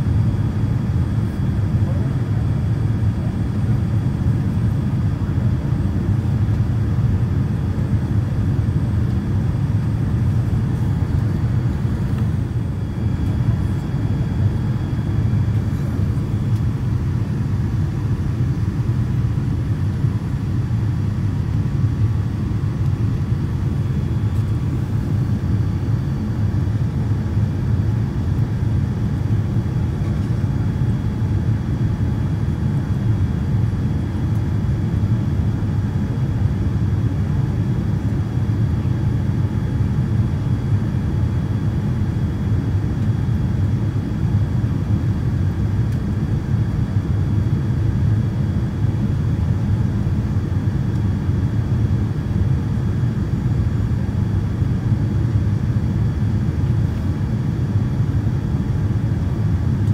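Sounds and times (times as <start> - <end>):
airplane cabin engine rumble: 0.0 - 59.9.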